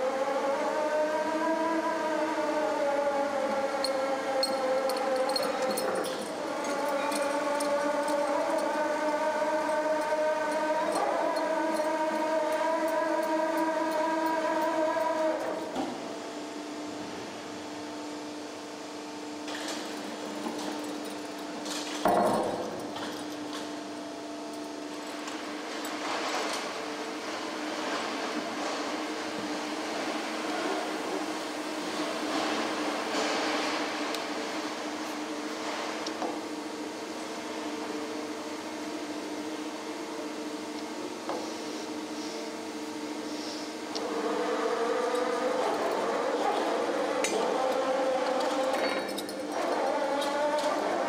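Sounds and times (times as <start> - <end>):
plate bending machine hum: 0.0 - 51.0.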